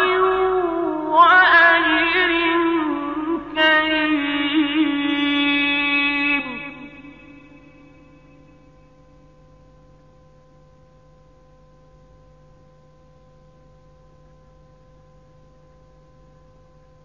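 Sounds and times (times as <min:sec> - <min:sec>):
reverberant voice tail: 0:00.0 - 0:08.6
faint steady hum: 0:00.0 - 0:17.0.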